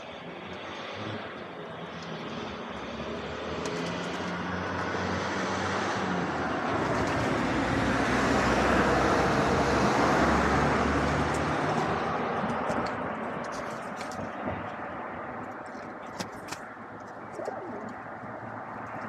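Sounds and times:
motor vehicle passing: 0:00.6 - 0:12.7, 0:17.0 - 0:19.0.

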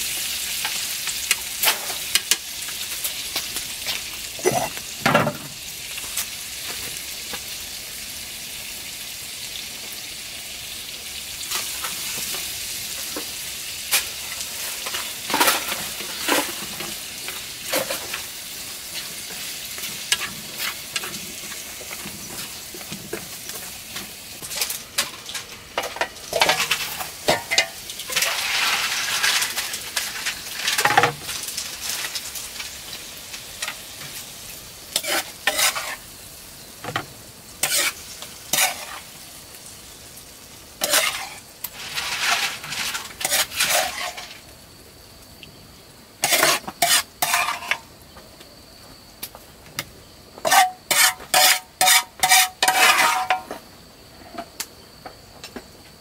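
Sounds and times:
food sizzling in a frying pan: 0:00.0 - 0:54.5
utensil scraping a pan: 0:24.4 - 0:31.2, 0:34.9 - 0:36.0, 0:37.6 - 0:39.1, 0:40.8 - 0:44.4, 0:46.2 - 0:47.8, 0:50.4 - 0:53.6.

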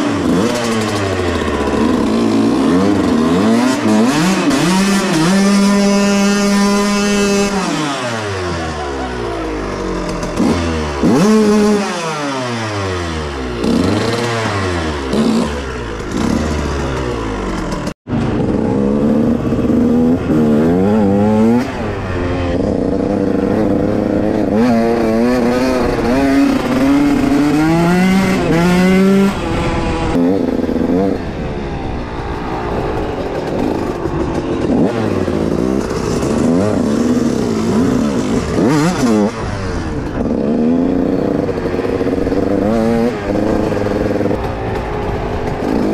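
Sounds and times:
dirt bike engines revving: 0:00.0 - 0:45.9.

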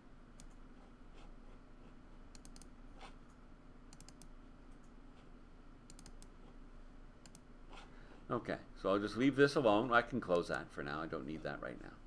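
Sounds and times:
steady low hum: 0:00.0 - 0:12.0
computer mouse clicks: 0:00.3 - 0:01.3, 0:02.3 - 0:05.0, 0:05.9 - 0:06.4, 0:07.2 - 0:07.9.

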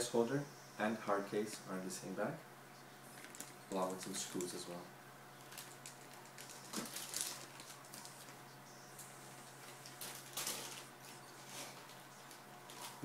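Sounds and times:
plastic bags crinkling: 0:03.1 - 0:04.7, 0:05.4 - 0:08.4, 0:09.5 - 0:13.0.

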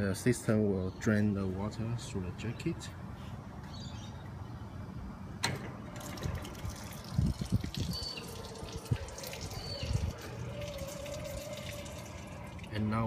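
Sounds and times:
water splashing onto concrete: 0:06.0 - 0:12.8.

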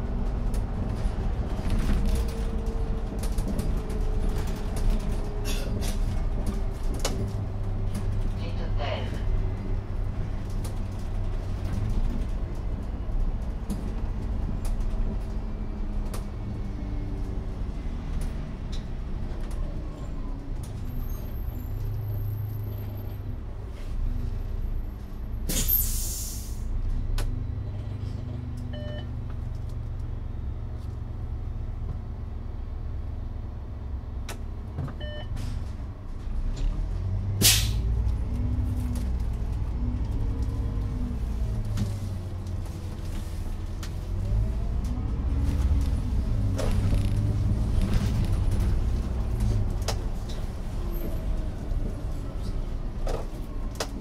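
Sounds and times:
bus engine running: 0:00.0 - 0:54.0
short beeps: 0:28.7 - 0:29.1, 0:35.0 - 0:35.3.

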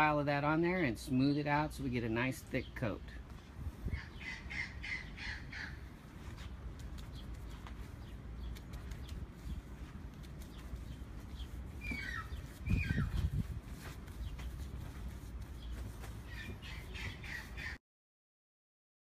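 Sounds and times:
bird calling: 0:03.8 - 0:09.2, 0:10.4 - 0:13.4, 0:15.6 - 0:17.8.

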